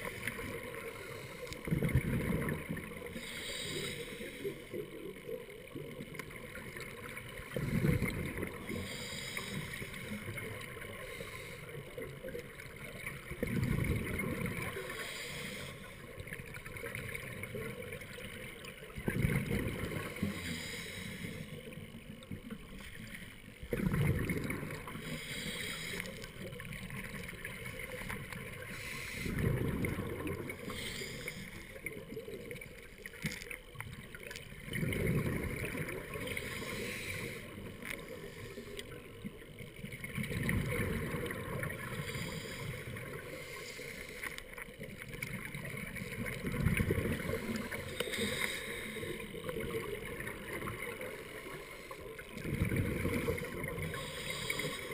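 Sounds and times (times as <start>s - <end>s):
exhaled bubbles rushing: 1.6s - 3.2s, 5.8s - 8.9s, 12.1s - 15.0s, 16.4s - 20.3s, 22.4s - 25.2s, 26.6s - 30.8s, 33.8s - 36.8s, 39.4s - 43.3s, 45.0s - 48.4s, 49.3s - 51.3s, 52.2s - 54.9s
regulator hiss: 3.1s - 4.8s, 8.7s - 10.2s, 14.9s - 16.1s, 20.1s - 21.8s, 25.0s - 26.3s, 28.7s - 29.4s, 30.6s - 31.8s, 36.3s - 38.9s, 41.9s - 44.4s, 53.8s - 54.9s.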